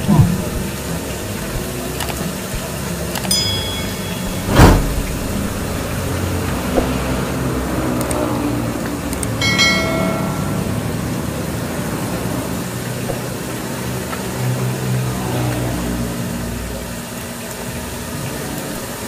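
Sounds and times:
street traffic rumble: 0:00.0 - 0:19.0
light ringing click: 0:03.3 - 0:06.0, 0:09.4 - 0:10.9
ringing chime: 0:03.3 - 0:06.1, 0:09.4 - 0:11.6
loud rush of noise: 0:03.4 - 0:08.8, 0:09.4 - 0:12.6.

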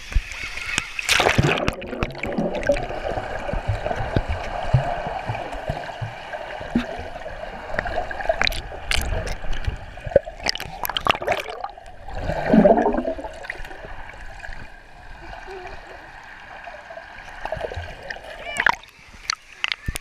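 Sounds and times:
bubble clicks: 0:01.1 - 0:02.9, 0:08.4 - 0:09.7, 0:10.4 - 0:11.9, 0:18.6 - 0:20.0
muffled underwater gurgling: 0:01.3 - 0:14.1.

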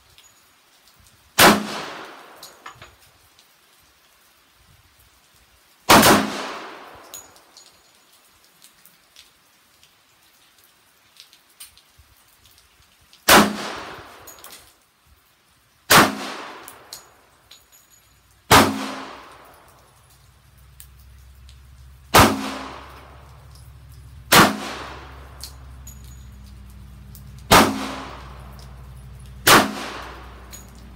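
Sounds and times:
handgun shots with ringing echo: 0:01.4 - 0:02.6, 0:05.9 - 0:07.2, 0:13.3 - 0:14.5, 0:15.9 - 0:17.1, 0:18.5 - 0:19.6, 0:22.1 - 0:23.2, 0:24.3 - 0:25.6, 0:27.5 - 0:28.7, 0:29.4 - 0:30.8.

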